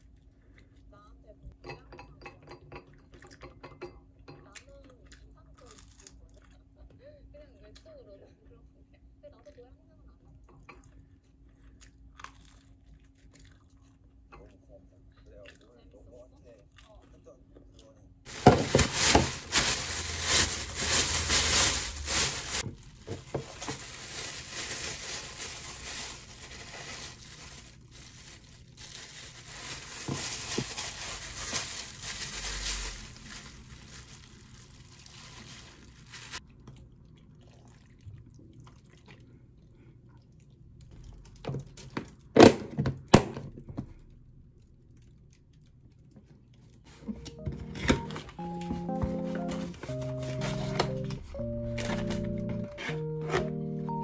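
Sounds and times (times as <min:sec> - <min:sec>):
plastic bags rustling: 0:18.3 - 0:36.4, 0:47.4 - 0:54.0.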